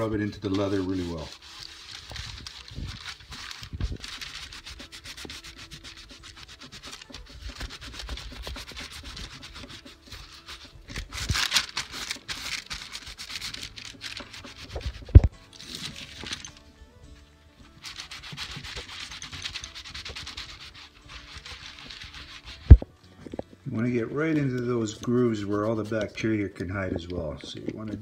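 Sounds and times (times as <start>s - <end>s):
cloth rubbing on leather: 0.0s - 16.3s, 17.7s - 22.9s.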